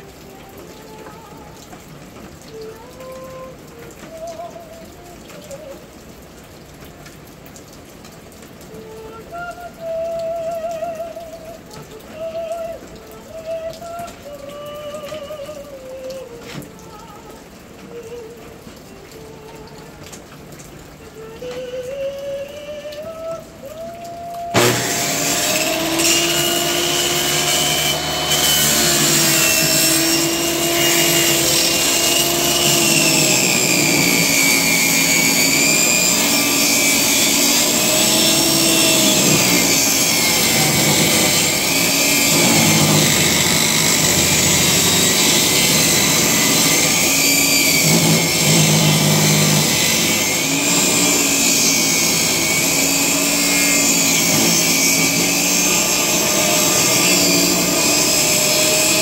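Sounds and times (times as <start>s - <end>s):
table saw cutting wood: 24.5s - 59.0s.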